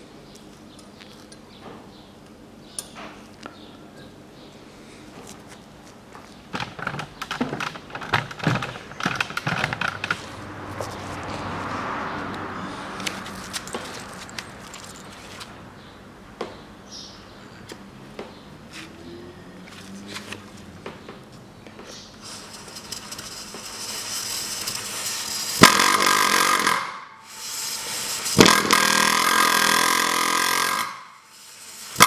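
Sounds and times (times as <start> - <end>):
tool clicks and scrapes: 6.6 - 11.4, 13.0 - 15.5, 21.9 - 32.0
air tool buzzing: 22.1 - 32.0
air hiss: 27.2 - 28.4, 31.2 - 32.0.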